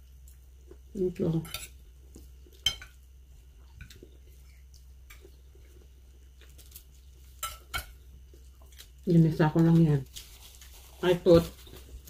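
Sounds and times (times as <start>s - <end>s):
low steady hum: 0.0s - 12.0s
chewing: 3.6s - 7.4s, 8.3s - 9.1s
cutlery touching plates: 7.4s - 7.9s.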